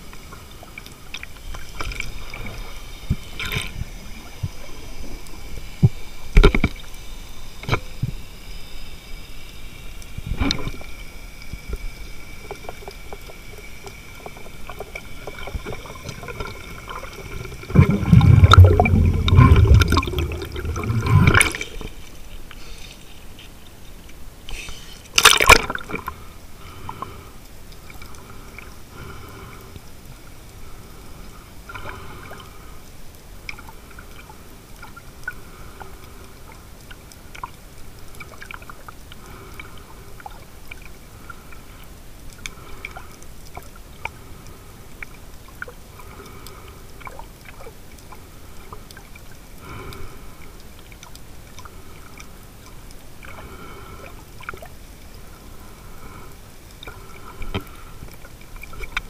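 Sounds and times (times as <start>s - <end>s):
small underwater clicks: 0.0s - 59.0s
underwater gurgling: 0.0s - 59.0s
underwater swishing: 0.0s - 59.0s
splash into water: 25.2s - 25.9s.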